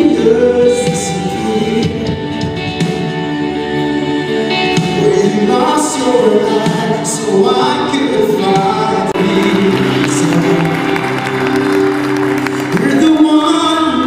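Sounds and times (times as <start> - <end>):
steady musical accompaniment: 0.0 - 14.0
voices singing worship song: 3.8 - 14.0.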